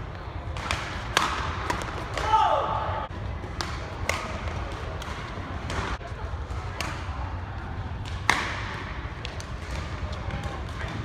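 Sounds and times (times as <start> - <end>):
rackets smacking shuttlecock: 0.4 - 2.5, 3.4 - 6.0, 8.0 - 11.0.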